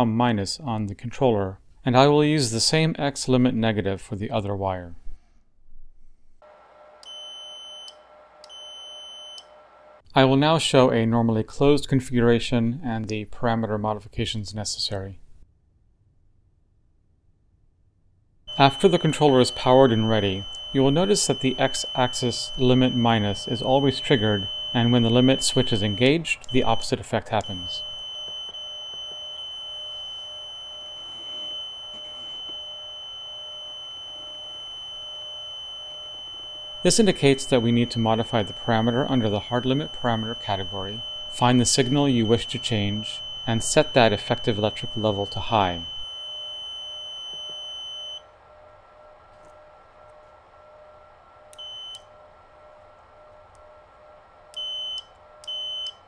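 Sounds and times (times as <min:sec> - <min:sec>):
high-pitched electronic tone: 0:18.5 - 0:48.2.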